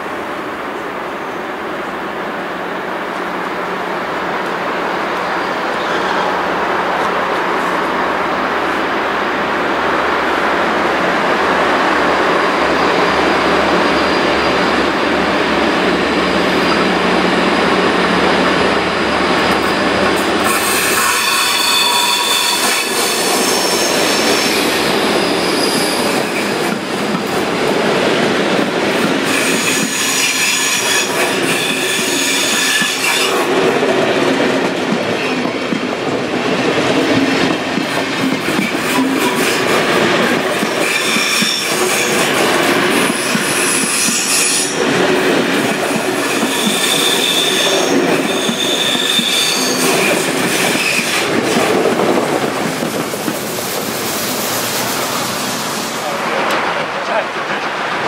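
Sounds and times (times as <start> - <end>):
diesel locomotive passing: 0.0 - 58.0
train coaches rolling by: 0.0 - 58.0
wheels squealing: 20.4 - 26.6.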